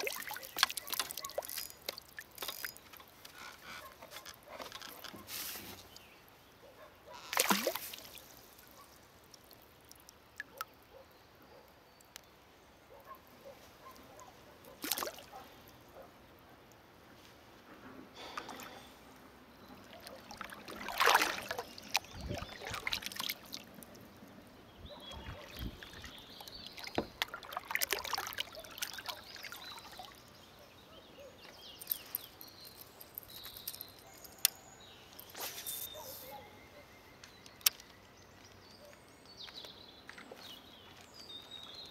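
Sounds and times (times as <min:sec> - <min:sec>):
paddle drips and splashes: 0:00.0 - 0:03.8, 0:07.2 - 0:10.9, 0:14.7 - 0:15.8, 0:18.2 - 0:19.1, 0:19.7 - 0:24.5, 0:25.2 - 0:30.5.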